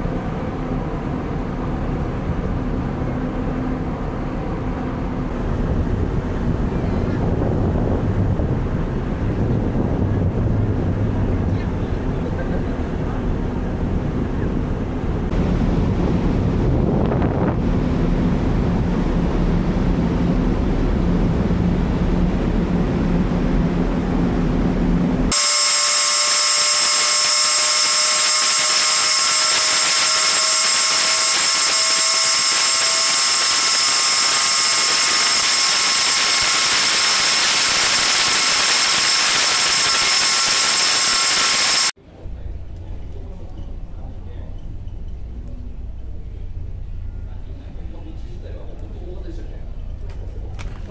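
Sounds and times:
low rumble: 5.2s - 25.3s
wind buffeting microphone: 5.3s - 25.2s
machinery hissing and whining: 25.3s - 42.0s.

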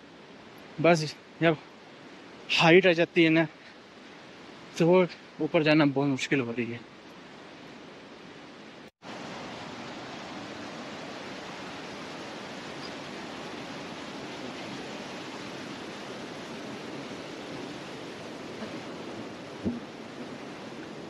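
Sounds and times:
stream rushing over rocks: 0.0s - 21.0s.

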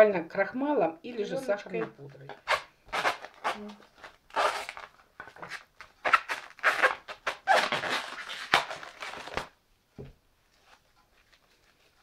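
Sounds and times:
cling film crinkling: 2.4s - 9.6s.

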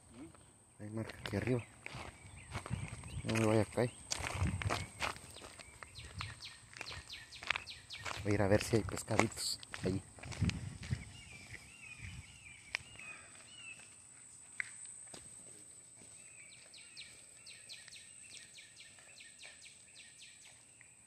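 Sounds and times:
small animals chirping: 1.1s - 9.2s.

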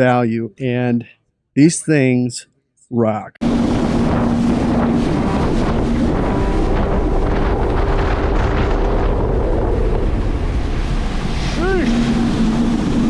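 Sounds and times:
water rushing past hull: 3.4s - 13.0s
wind buffeting microphone: 3.4s - 13.0s.

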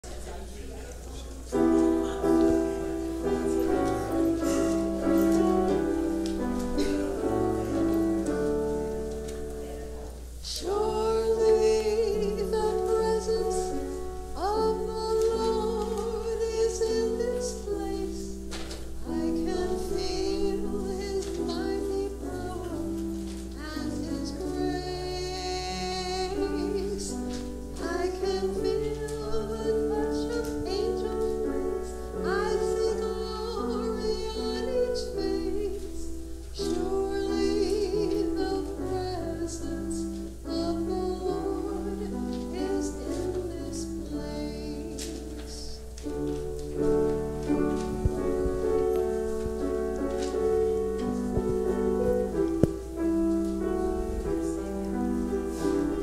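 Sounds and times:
piano music: 1.5s - 56.0s
solo singing voice: 9.7s - 46.3s.

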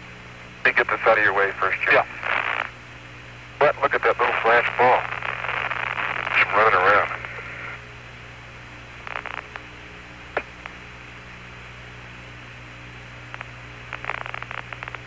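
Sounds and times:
radio hiss and hum: 0.0s - 15.0s
radio crackles: 0.6s - 2.8s, 3.4s - 7.9s, 8.8s - 11.5s, 13.1s - 15.0s.

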